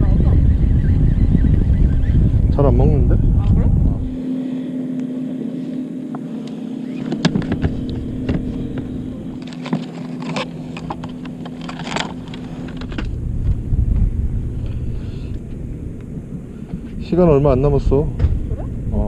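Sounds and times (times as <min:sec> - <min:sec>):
boat engine humming: 0:00.0 - 0:19.0
tackle box clicks and rattles: 0:09.4 - 0:13.1.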